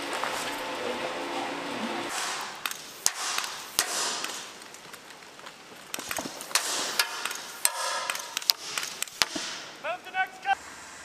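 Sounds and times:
rifle shots echoing: 2.1s - 4.6s, 6.0s - 9.8s.

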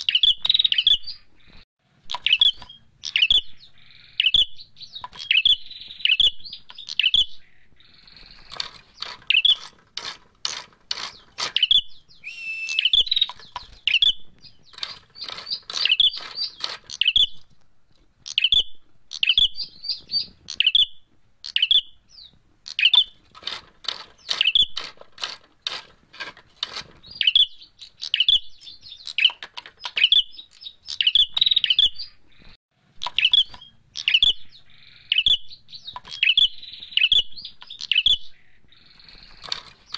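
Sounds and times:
dry clicks: 8.3s - 11.8s, 12.6s - 18.5s, 22.7s - 31.1s
bird chirping sharply: 11.1s - 17.4s, 27.0s - 39.3s.

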